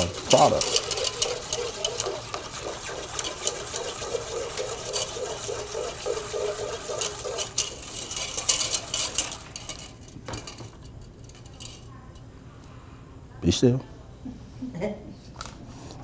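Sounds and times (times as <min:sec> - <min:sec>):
whisk scraping a metal saucepan: 0:00.0 - 0:10.6.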